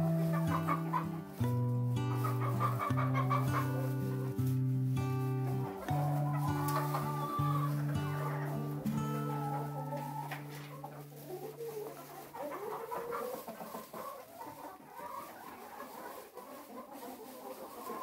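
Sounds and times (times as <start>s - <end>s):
background music: 0.0s - 12.2s
chickens clucking: 0.0s - 18.0s.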